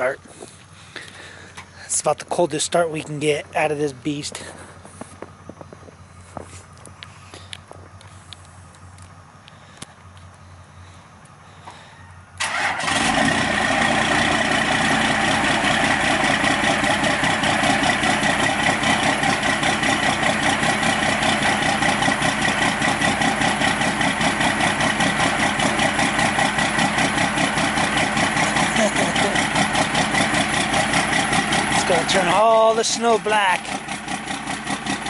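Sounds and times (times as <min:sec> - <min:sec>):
diesel engine idling: 0:00.0 - 0:35.0.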